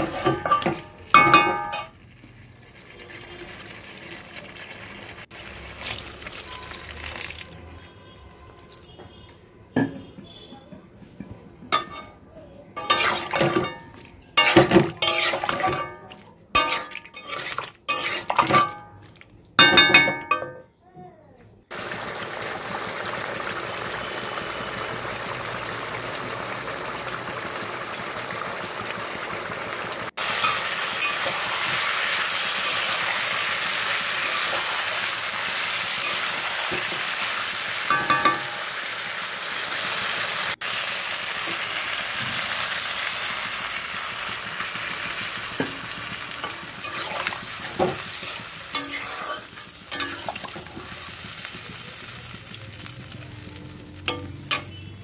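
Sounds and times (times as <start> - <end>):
metal spatula clinking on pan: 0.0 - 1.9, 11.7 - 12.2, 12.8 - 19.0, 19.6 - 20.6, 30.4 - 31.4, 37.9 - 38.7, 46.4 - 50.6, 54.0 - 54.9
food sizzling in a pan: 0.0 - 7.6, 12.8 - 18.4, 21.7 - 55.0.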